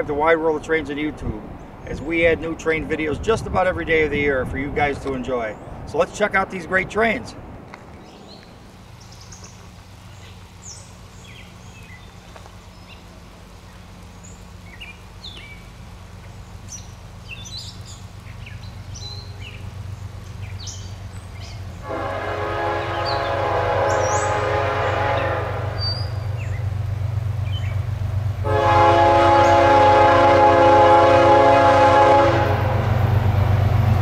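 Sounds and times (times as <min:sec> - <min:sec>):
diesel locomotive engine drone: 0:00.0 - 0:34.0
birds chirping: 0:00.5 - 0:03.4, 0:04.6 - 0:31.0
locomotive air horn blast: 0:21.8 - 0:26.3, 0:28.4 - 0:33.0.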